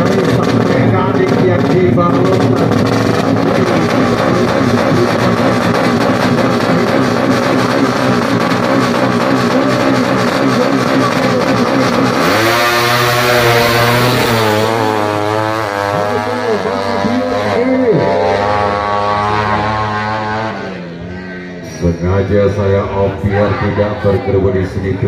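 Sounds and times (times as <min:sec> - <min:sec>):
motorbike engine revving: 0:00.0 - 0:23.0.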